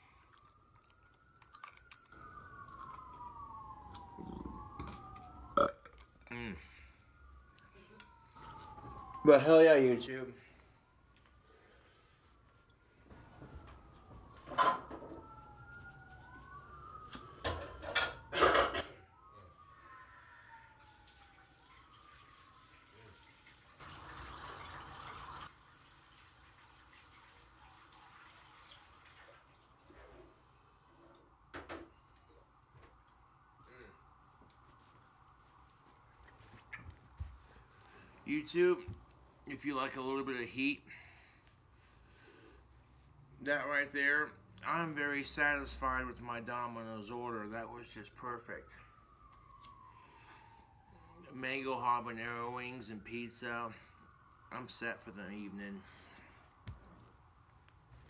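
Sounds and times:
siren wailing: 0.0s - 25.5s, 29.9s - 58.0s
chewing: 0.2s - 6.4s.

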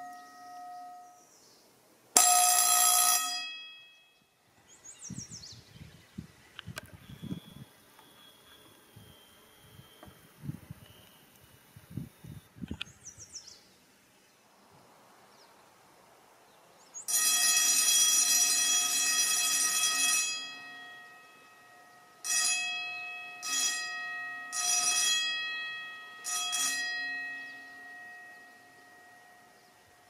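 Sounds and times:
electric fire alarm bell ringing: 2.2s - 4.2s, 17.1s - 30.0s.

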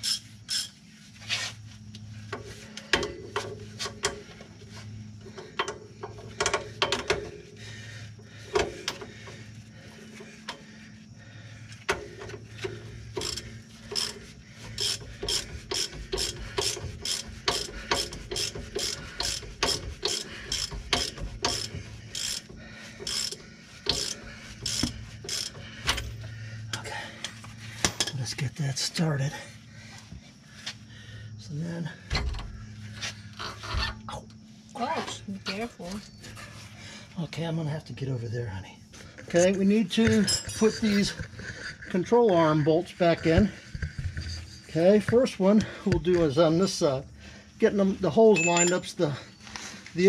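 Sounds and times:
low steady hum: 0.0s - 50.0s
socket ratchet clicking: 14.8s - 25.6s.

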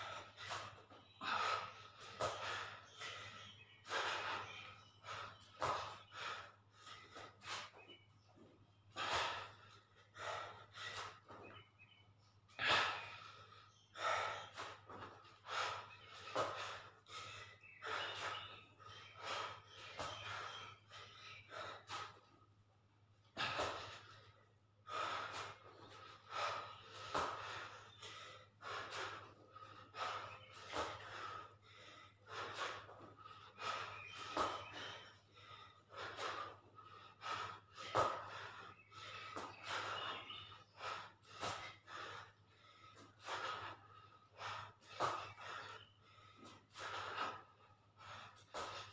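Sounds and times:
man breathing heavily: 0.0s - 48.9s.

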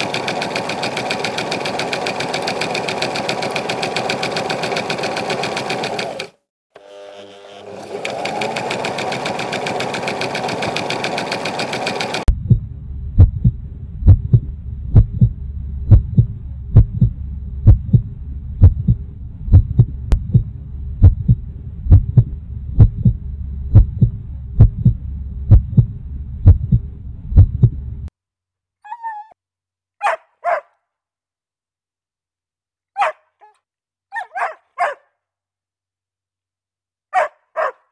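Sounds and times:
sewing machine running: 0.0s - 12.3s
heartbeat thumping: 12.3s - 27.9s
low hum: 12.3s - 28.1s
dog yelps: 28.8s - 29.4s, 30.0s - 30.7s, 33.0s - 35.1s, 37.2s - 37.8s.

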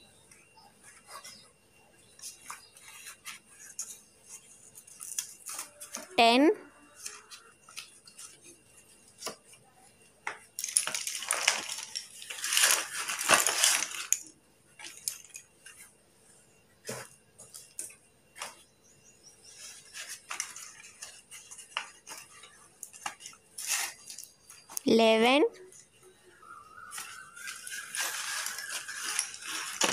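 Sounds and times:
pencils handled clicking: 10.3s - 15.8s
pencils clattering onto plate: 10.6s - 15.4s, 26.9s - 29.9s.

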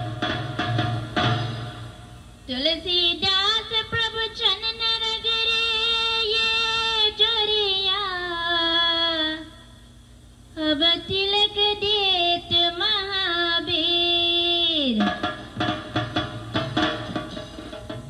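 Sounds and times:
woman singing into a microphone: 2.5s - 9.6s, 10.6s - 15.1s.

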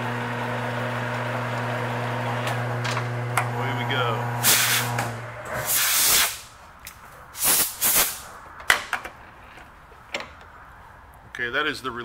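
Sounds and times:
lathe motor hum: 0.0s - 5.7s
air blow gun hissing: 4.4s - 6.5s, 7.4s - 8.4s.

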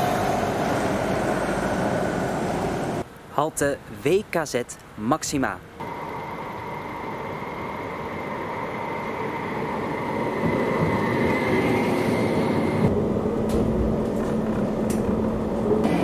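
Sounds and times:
tram wheels rumbling on rail: 0.0s - 3.0s, 5.8s - 16.0s
thin high whine: 5.8s - 16.0s.

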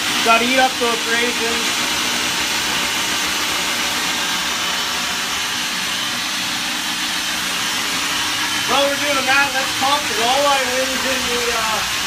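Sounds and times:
food processor motor hum: 0.0s - 12.0s.

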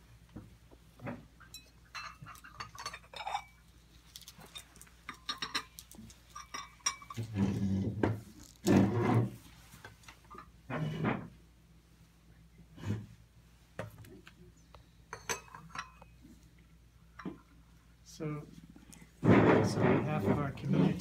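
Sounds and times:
dishes and cutlery clinking: 1.0s - 3.6s, 4.3s - 7.8s, 15.1s - 16.2s.

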